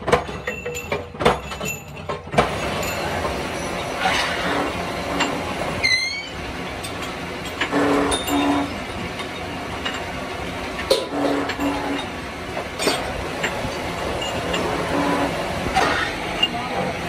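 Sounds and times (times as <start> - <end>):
metallic knocks and clanks: 0.0 - 4.2
metal-working machine rumbling: 0.0 - 17.0
short high squeak: 5.8 - 6.4.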